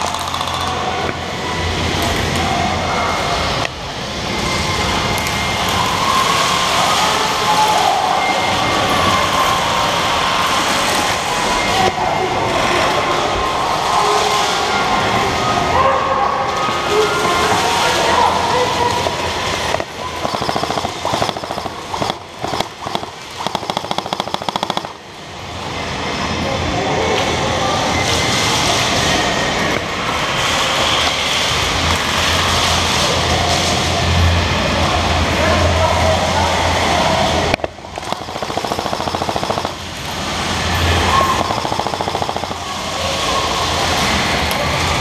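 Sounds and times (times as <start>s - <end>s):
airsoft rifle full auto bursts: 20.2s - 25.0s, 38.0s - 39.9s, 41.2s - 42.6s.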